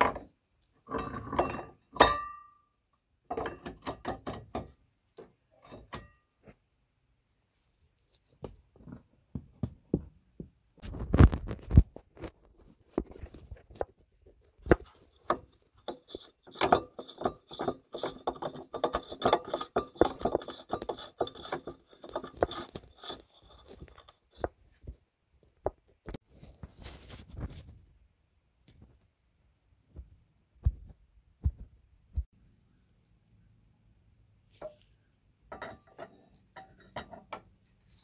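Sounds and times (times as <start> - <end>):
tools scraping on steel: 14.8 - 24.5, 35.5 - 38.0.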